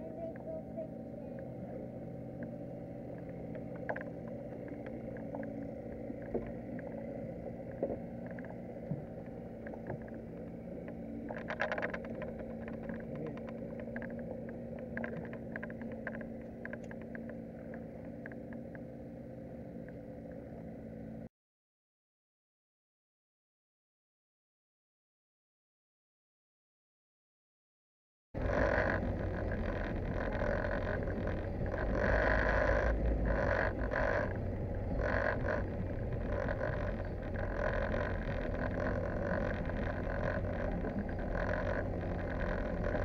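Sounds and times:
boat engine humming: 0.0s - 21.3s, 28.4s - 43.0s
fishing gear clicks and knocks: 8.2s - 18.6s.

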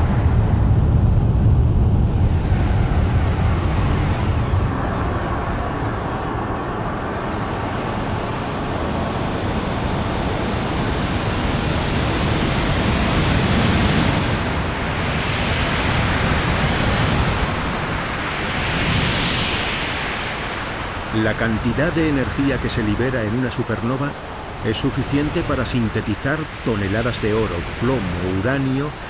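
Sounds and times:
explosion rumble: 0.0s - 5.9s.

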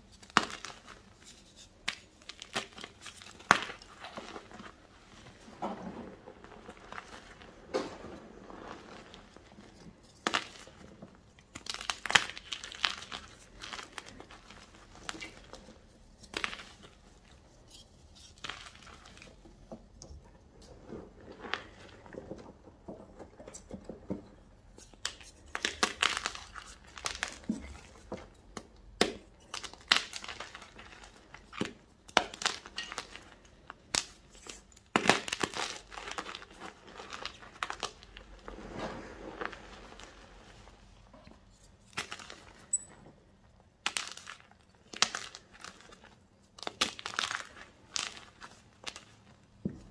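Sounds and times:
hands crushing chalk: 0.0s - 4.7s, 6.6s - 19.5s, 23.5s - 38.8s, 43.8s - 49.9s.

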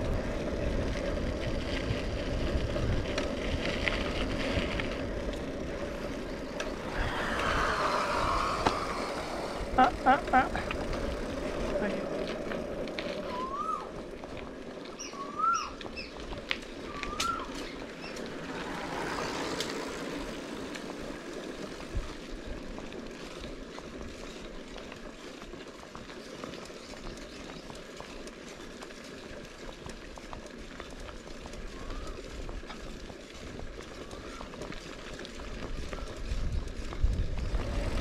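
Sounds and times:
wind noise: 0.0s - 12.1s, 33.5s - 38.0s
bike tyres rolling on trail: 0.0s - 38.0s
bird calling: 13.2s - 14.0s, 14.9s - 16.2s, 16.8s - 20.4s.

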